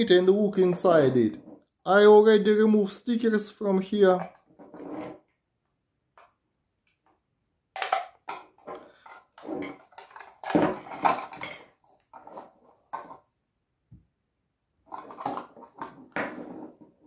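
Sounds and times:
clicks scrapes and clatter: 0:07.8 - 0:13.2, 0:14.8 - 0:17.0.

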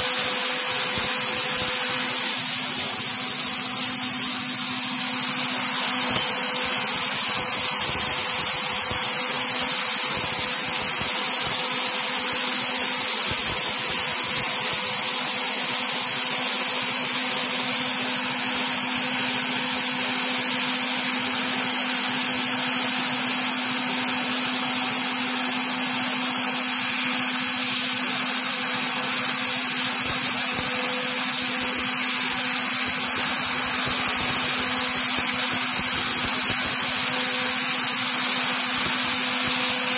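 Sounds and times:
air nozzles hissing: 0:00.0 - 0:16.3, 0:26.5 - 0:39.9
machine spindle hum: 0:00.0 - 0:39.9.

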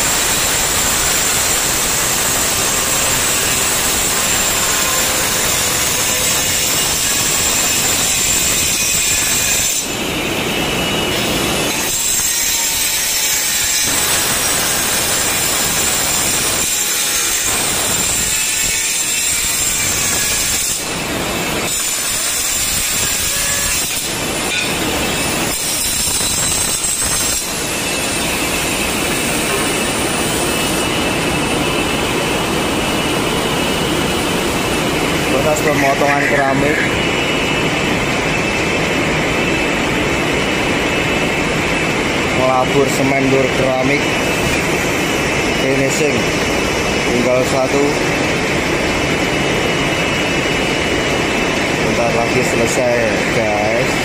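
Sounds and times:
tile cutter cutting tile: 0:00.9 - 0:10.0, 0:11.7 - 0:21.0, 0:21.6 - 0:28.4.

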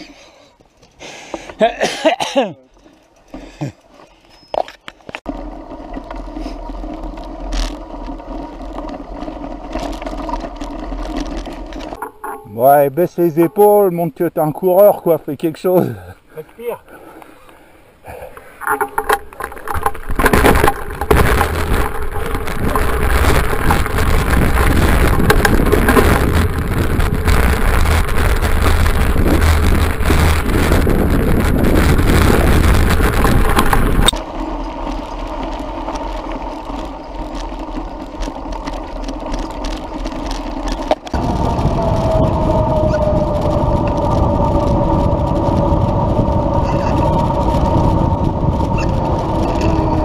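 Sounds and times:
bike tyres rolling on rough lane: 0:02.7 - 0:50.0
wind on microphone: 0:18.1 - 0:37.5, 0:40.9 - 0:50.0.

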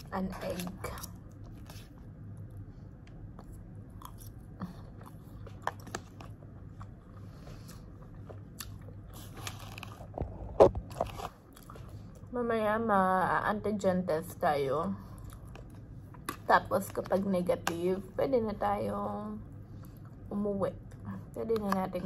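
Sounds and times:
person chewing: 0:00.0 - 0:12.3, 0:15.2 - 0:16.5.

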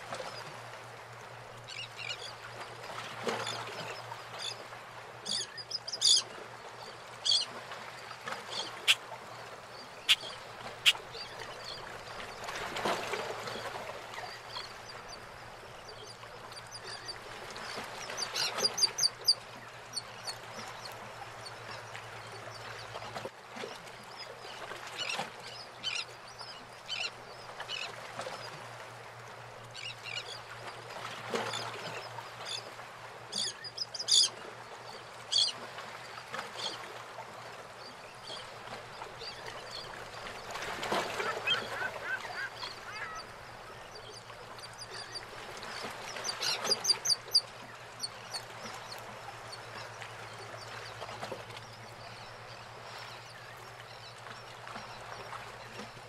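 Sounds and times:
water sloshing around boats: 0:00.0 - 0:56.0
birds chirping: 0:08.4 - 0:11.9, 0:41.2 - 0:44.2.

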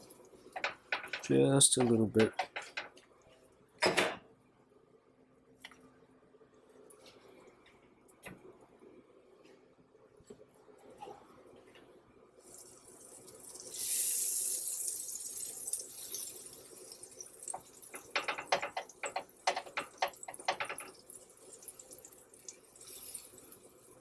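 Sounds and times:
butter sizzling on a griddle: 0:12.4 - 0:24.0.

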